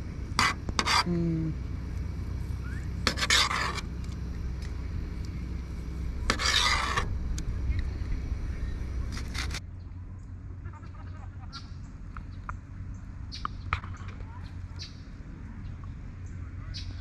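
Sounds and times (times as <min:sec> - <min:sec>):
steady low hum: 0:00.0 - 0:17.0
knife scraping on metal plate: 0:00.4 - 0:01.1, 0:03.0 - 0:03.9, 0:06.2 - 0:07.1.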